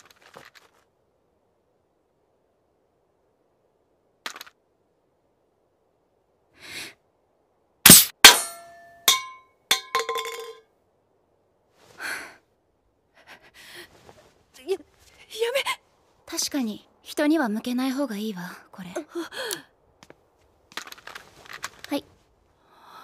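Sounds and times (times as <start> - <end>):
airsoft pistol shot: 7.9 - 8.6
drink can clanging and clattering: 7.9 - 10.6.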